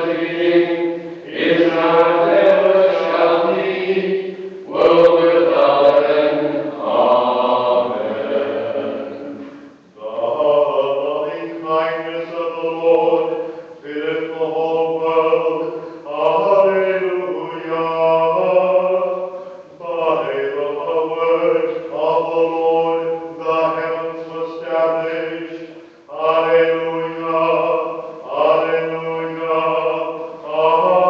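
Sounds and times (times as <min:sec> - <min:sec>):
man chanting: 0:00.0 - 0:31.0
breaths: 0:13.4 - 0:13.8, 0:15.7 - 0:16.1, 0:19.3 - 0:19.8, 0:25.7 - 0:26.1.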